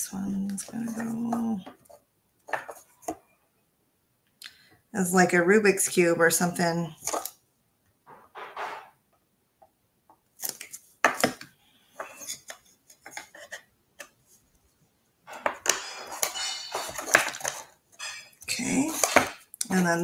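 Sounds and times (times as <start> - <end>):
wooden panels knocking and scraping: 8.0 - 9.0, 15.3 - 19.4.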